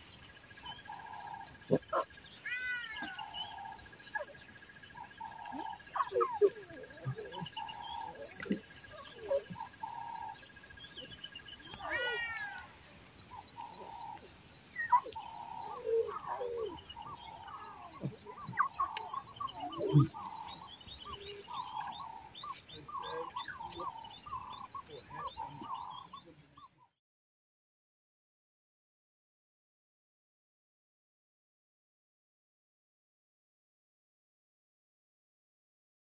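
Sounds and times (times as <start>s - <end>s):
small birds chirping: 0.0s - 27.0s
lion cubs mewing: 0.6s - 26.2s.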